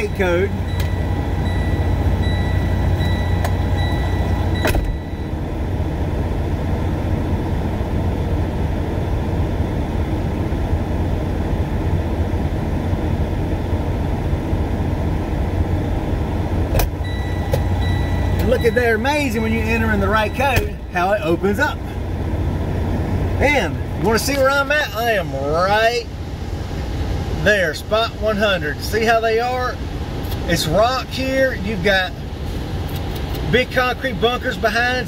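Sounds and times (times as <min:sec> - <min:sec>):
high electronic beeps: 0:00.0 - 0:05.4, 0:17.0 - 0:20.9
diesel truck engine idling: 0:00.0 - 0:35.0.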